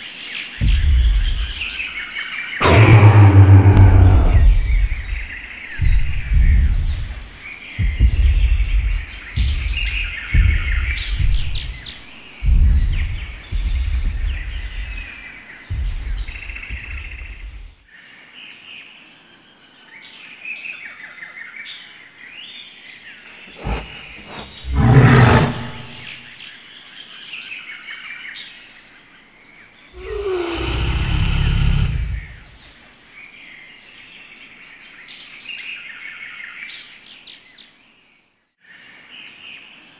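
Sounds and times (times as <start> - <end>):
birdsong chirping: 0.0 - 17.7, 23.5 - 26.2, 30.0 - 32.7
heavy dinosaur footstep thuds: 0.6 - 2.0, 2.6 - 17.8, 23.5 - 26.2, 30.0 - 32.6
low dinosaur roar: 2.6 - 5.2, 23.6 - 26.2, 30.0 - 32.5.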